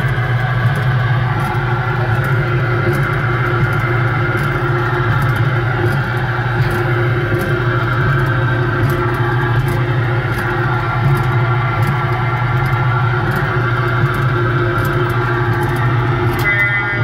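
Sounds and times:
steady low hum: 0.0s - 17.0s
guitar-style music from speaker: 16.3s - 17.0s.

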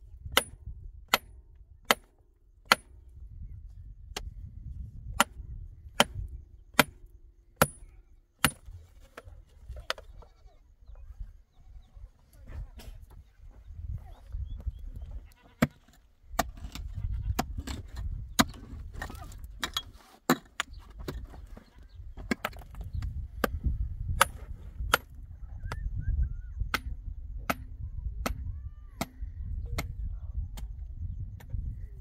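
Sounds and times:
hand tool chopping stone and earth: 0.3s - 3.0s, 5.1s - 10.0s, 15.5s - 25.2s, 26.7s - 29.9s.

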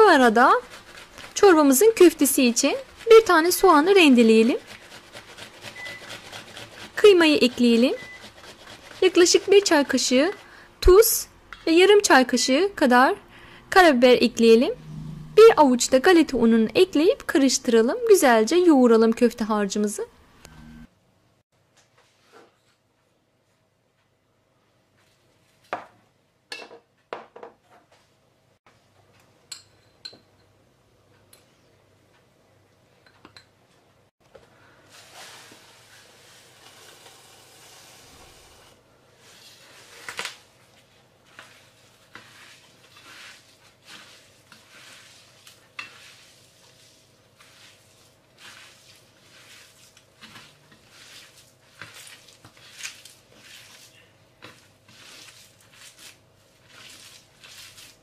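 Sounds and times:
hands kneading minced meat: 0.0s - 11.1s, 39.2s - 58.0s.

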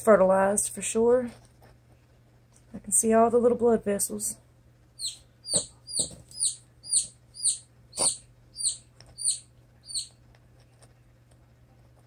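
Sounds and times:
chick peeping: 5.0s - 10.2s.

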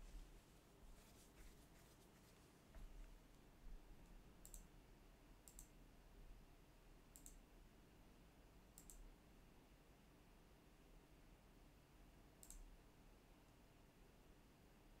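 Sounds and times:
computer mouse button clicks: 7.2s - 7.4s, 8.8s - 9.0s, 12.4s - 12.6s.

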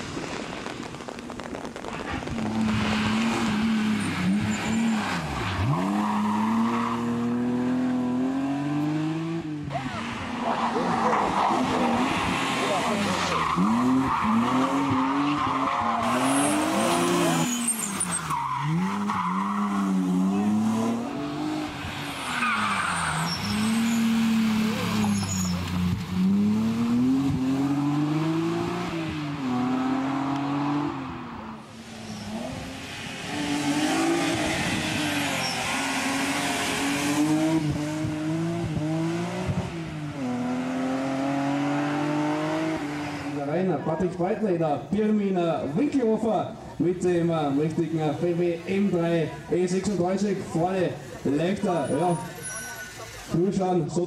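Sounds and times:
tyres skidding: 0.0s - 54.0s
rally car engine at high revs: 2.3s - 43.5s.

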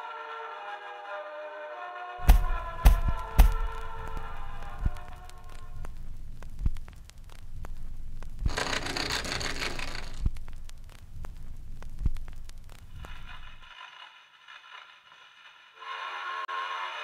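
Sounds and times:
slow heavy thuds: 2.2s - 8.5s
faint crackling clicks: 3.0s - 13.7s.

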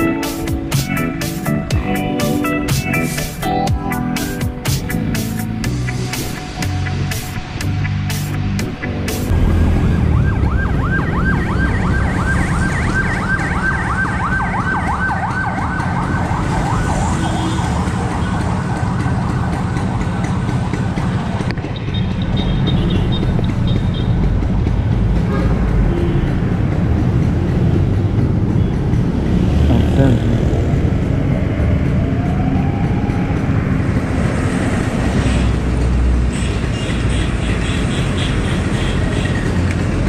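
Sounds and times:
low rumble: 9.2s - 12.7s
warbling siren tone: 9.3s - 20.9s.

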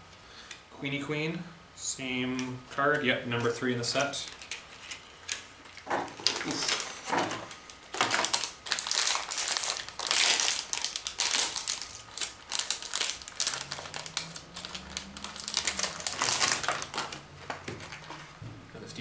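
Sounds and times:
foil pack crinkling: 3.3s - 18.4s.

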